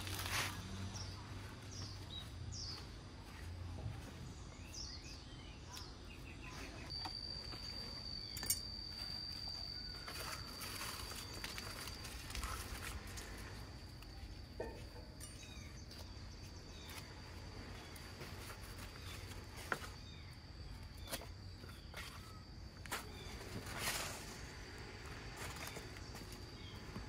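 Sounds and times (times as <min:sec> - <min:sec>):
faint bird chirps: 0:00.9 - 0:12.8.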